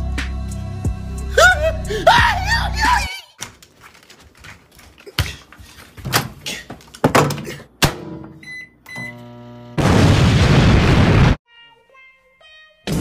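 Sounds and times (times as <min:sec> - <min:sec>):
knocks and thuds: 0:06.0 - 0:08.4
loud explosion blast: 0:09.8 - 0:11.4.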